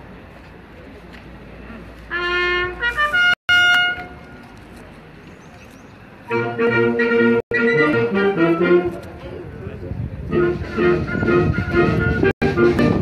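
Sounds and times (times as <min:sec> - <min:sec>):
brass band playing: 0:02.1 - 0:04.2, 0:06.3 - 0:09.2, 0:10.2 - 0:13.0.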